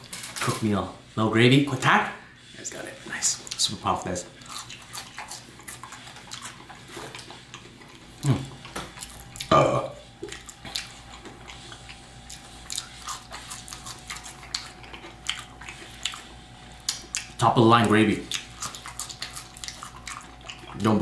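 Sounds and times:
wet mouth eating sounds: 3.3s - 21.0s.

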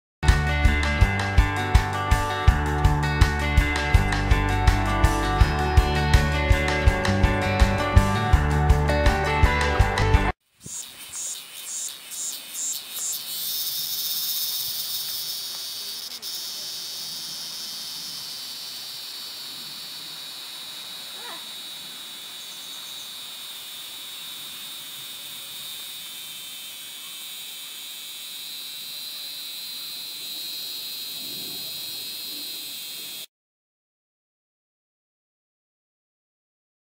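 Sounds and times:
cicada buzzing: 10.5s - 33.3s.

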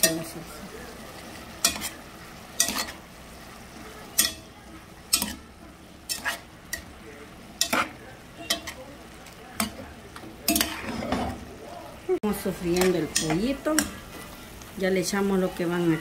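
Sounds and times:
chicken sizzling: 0.0s - 16.0s
spoon scraping metal pot: 6.1s - 6.5s, 10.4s - 11.4s.

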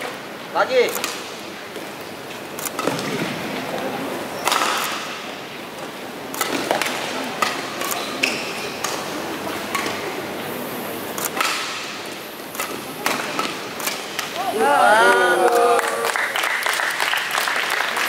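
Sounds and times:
rackets hitting shuttlecock: 0.8s - 1.9s, 2.6s - 3.5s, 4.4s - 5.4s, 6.3s - 10.2s, 11.1s - 14.6s
crowd murmur: 3.0s - 16.6s.

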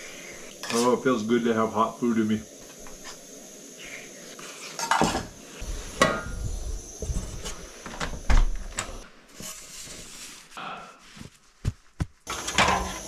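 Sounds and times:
metal pots and utensils clinking: 4.7s - 5.4s, 12.3s - 13.0s.

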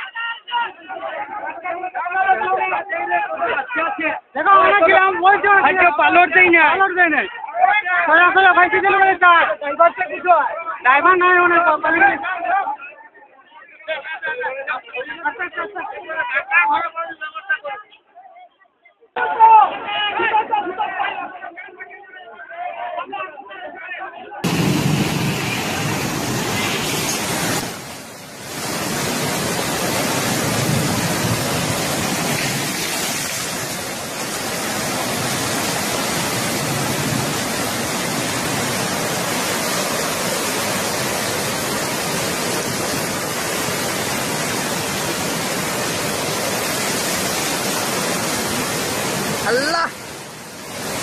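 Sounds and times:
muddy water rushing: 24.4s - 51.0s.

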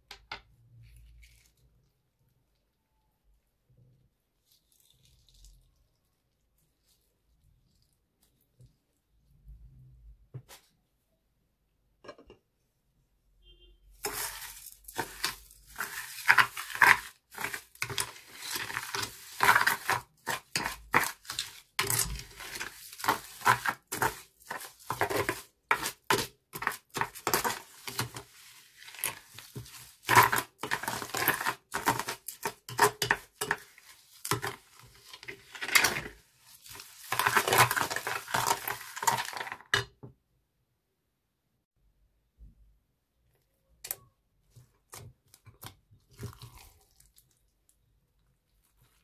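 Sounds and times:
spoon stirring slime against glass: 14.0s - 39.9s, 43.8s - 47.9s.

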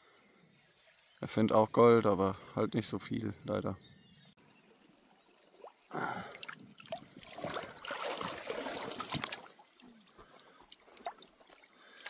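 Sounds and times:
water splashing in a tub: 4.9s - 12.0s.

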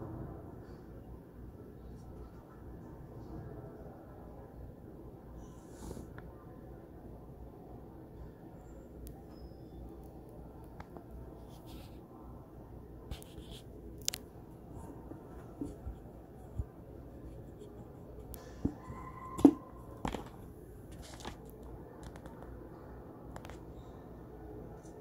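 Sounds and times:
room noise: 0.0s - 25.0s.

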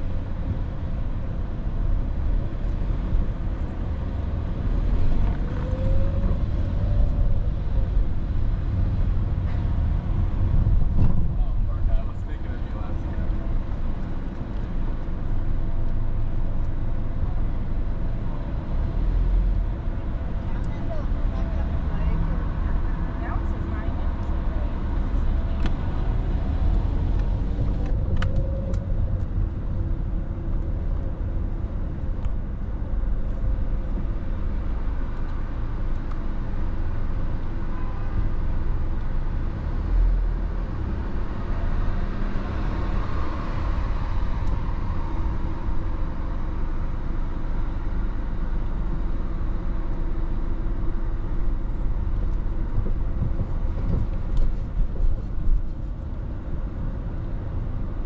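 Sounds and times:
car engine and road noise: 0.0s - 58.0s
passing vehicle: 0.0s - 58.0s.

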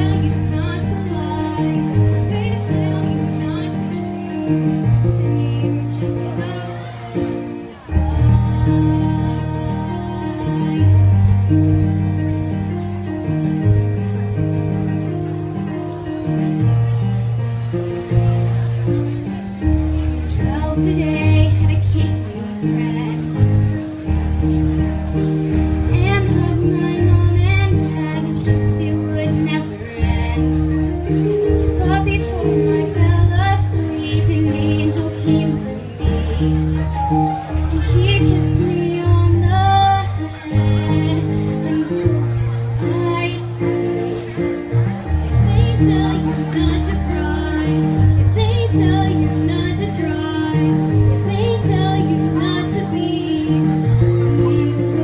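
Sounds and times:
instrumental held chords: 0.0s - 55.0s.

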